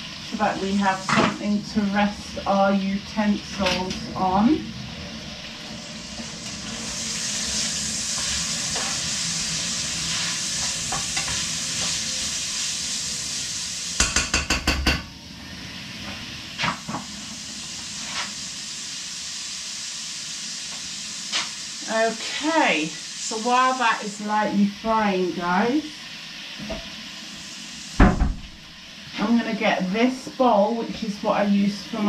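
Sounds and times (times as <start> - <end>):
food sizzling in a pan: 0.0 - 32.0
stirring in a pan: 5.3 - 14.3.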